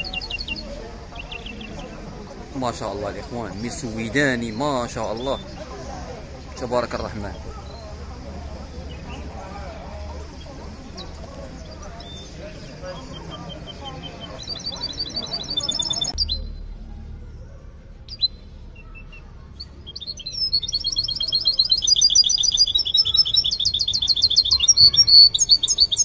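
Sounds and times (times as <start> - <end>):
finches singing in high trills: 12.0 - 16.5, 18.1 - 26.0.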